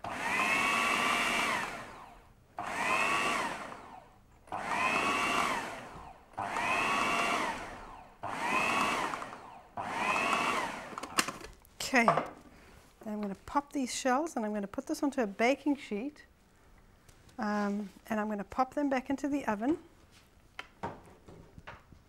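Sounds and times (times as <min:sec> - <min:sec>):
food processor motor whine: 0:00.0 - 0:11.5.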